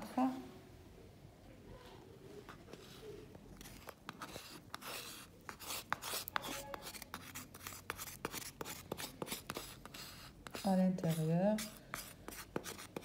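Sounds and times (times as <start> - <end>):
spatula scraping rubber bowl: 3.6 - 13.0.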